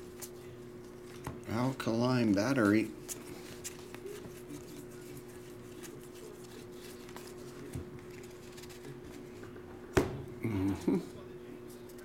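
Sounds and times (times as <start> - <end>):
cards sliding and ticking: 2.2 - 9.2.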